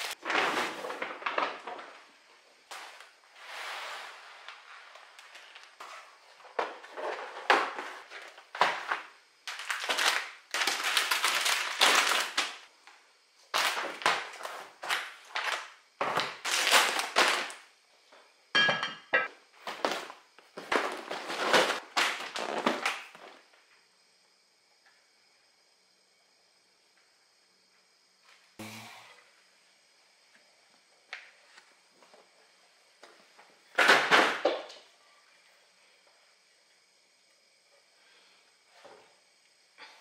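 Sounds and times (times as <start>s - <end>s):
plastic packaging crinkling: 0.0s - 2.0s, 9.5s - 12.7s, 13.5s - 17.6s.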